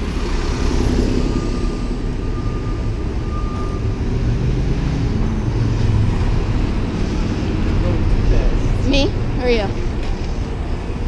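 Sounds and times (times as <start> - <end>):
bus running close by: 0.0 - 11.0
city traffic: 0.0 - 11.0.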